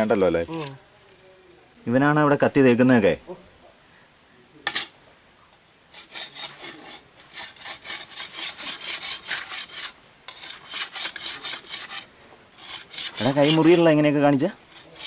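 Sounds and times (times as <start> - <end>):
sickle blade being sharpened: 4.7 - 5.0, 5.9 - 13.9, 14.6 - 15.0.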